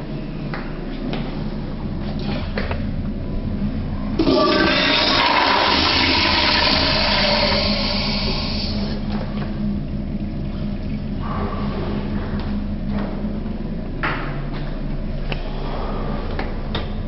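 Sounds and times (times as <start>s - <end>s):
toilet flushing: 4.2s - 12.2s.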